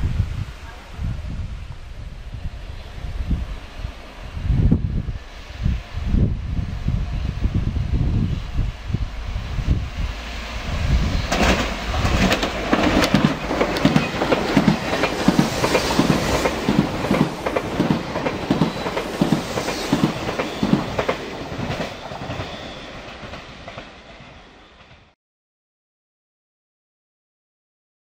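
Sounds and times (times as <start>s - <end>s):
train passing at speed: 0.0s - 25.2s
wheels clacking on rails: 11.1s - 25.2s.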